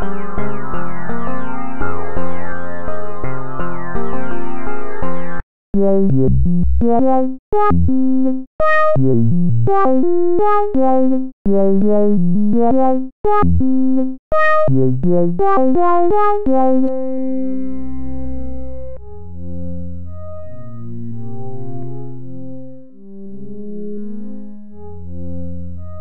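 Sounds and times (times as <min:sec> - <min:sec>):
synthesizer lead melody: 0:00.0 - 0:26.0
low synth chord: 0:16.4 - 0:26.0.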